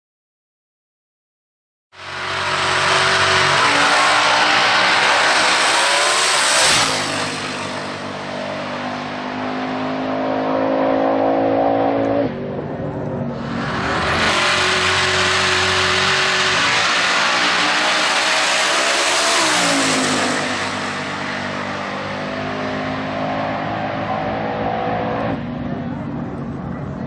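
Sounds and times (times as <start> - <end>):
drag car engine at full throttle: 2.0 - 27.0.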